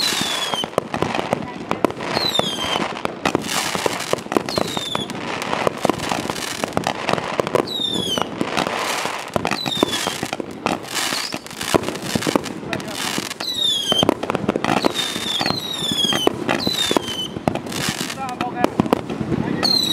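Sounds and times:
falling firework whistle: 0.0s - 0.8s, 2.1s - 2.9s, 4.4s - 5.2s, 7.6s - 10.3s, 10.9s - 11.6s, 13.3s - 14.1s, 14.7s - 18.0s, 19.6s - 19.9s
firework crackling: 0.0s - 19.9s
firework pops and cracks: 0.0s - 19.9s.

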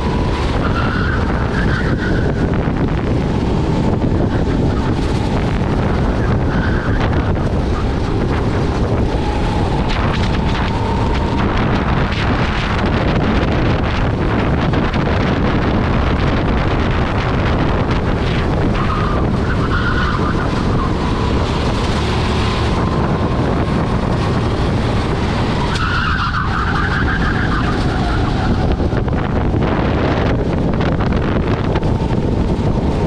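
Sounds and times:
go-kart engine drone: 0.0s - 33.0s
wind rushing over microphone: 0.0s - 33.0s
tyres squealing: 4.3s - 12.4s, 18.7s - 22.1s, 22.7s - 29.0s.

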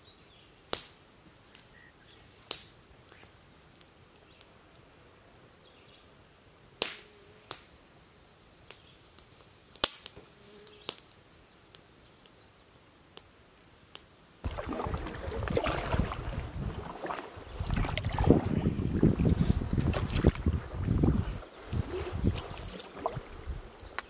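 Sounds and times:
wind rumbling on microphone: 14.4s - 24.0s.

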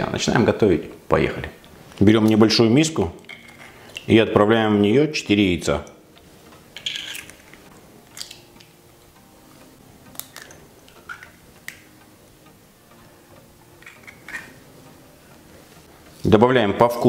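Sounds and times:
eggshells cracking: 6.8s - 8.8s, 10.1s - 11.9s.

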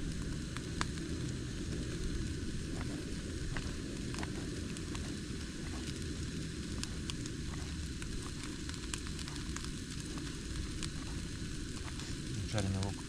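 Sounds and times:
gas burner low rumble: 0.0s - 13.0s
onions sizzling in a frying pan: 0.0s - 13.0s.

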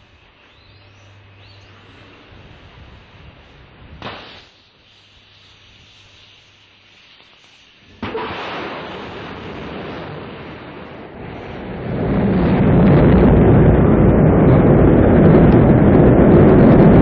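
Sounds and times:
sudden hiss: 0.0s - 11.6s
rocket engine rumble: 0.0s - 17.0s.

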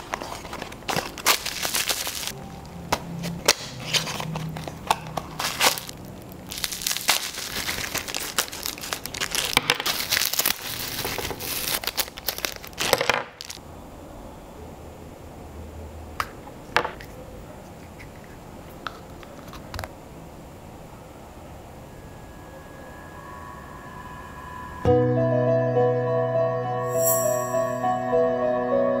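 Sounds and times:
plastic bags crinkling: 0.0s - 2.4s, 3.8s - 13.6s.

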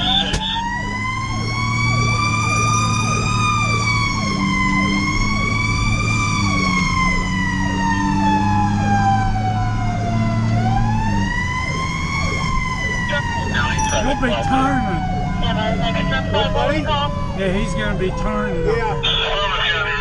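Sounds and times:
fire engine siren wailing: 0.0s - 20.0s.

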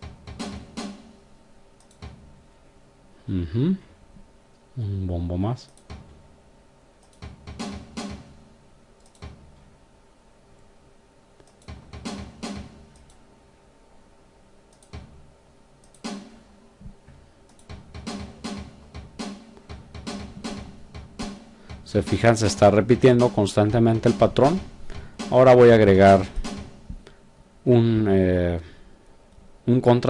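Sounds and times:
drum machine beat: 0.0s - 1.2s, 2.0s - 2.4s, 7.2s - 8.6s, 9.2s - 9.6s, 11.6s - 13.0s, 14.9s - 15.3s, 16.0s - 17.0s, 17.6s - 27.2s.

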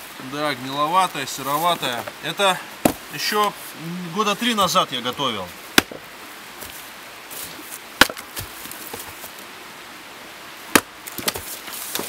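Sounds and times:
axe chopping wood: 2.8s - 3.0s, 5.7s - 6.1s, 8.0s - 9.1s, 10.7s - 12.0s.

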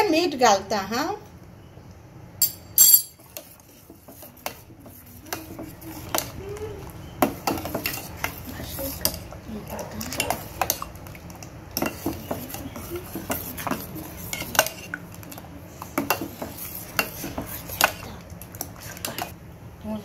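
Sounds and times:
spoon scraping a steel pot: 11.8s - 15.0s.

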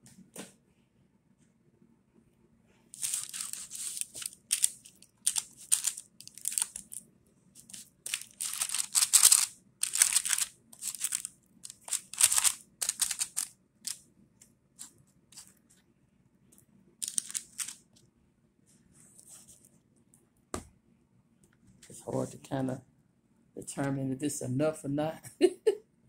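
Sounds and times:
paper liner crinkling: 3.0s - 7.0s, 7.6s - 14.0s, 14.8s - 15.7s, 17.0s - 18.0s.

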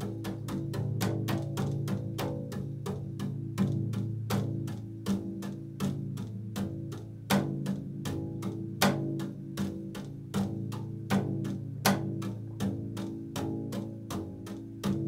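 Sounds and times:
double bass plucked notes: 0.0s - 15.0s.

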